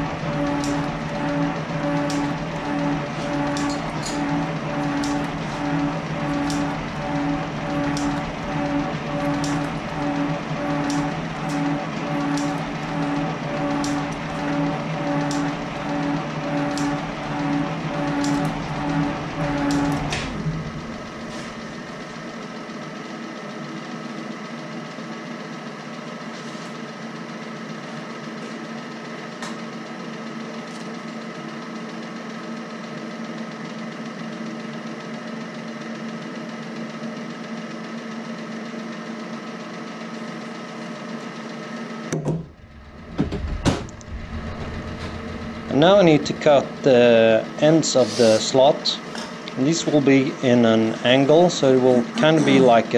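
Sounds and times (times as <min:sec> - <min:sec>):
metal shaper humming: 0:00.0 - 0:22.5, 0:42.2 - 0:50.0
knocks: 0:42.2 - 0:45.3.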